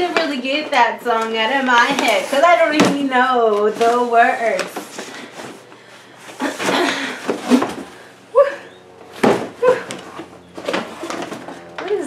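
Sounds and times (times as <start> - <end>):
box scraping out of cardboard box: 1.7 - 2.9, 3.5 - 8.1
cardboard boxes knocking: 1.8 - 5.1.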